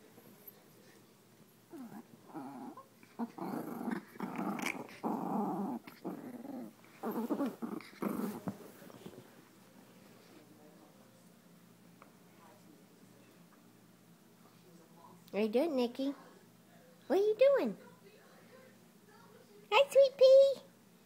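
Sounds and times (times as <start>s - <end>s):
small dogs growling: 1.7s - 9.2s.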